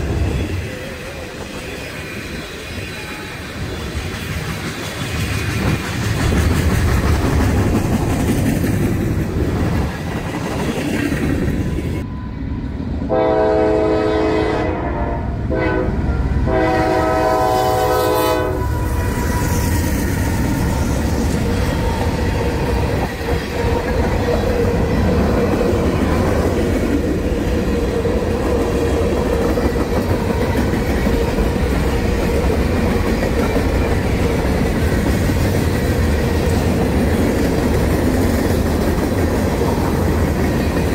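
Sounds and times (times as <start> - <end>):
freight train rumble and wheel clatter: 0.0 - 40.9
locomotive air horn blasts: 13.1 - 19.6.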